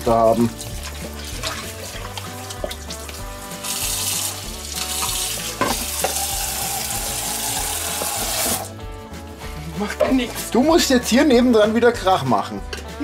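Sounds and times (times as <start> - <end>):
tap running into sink: 0.7 - 8.7.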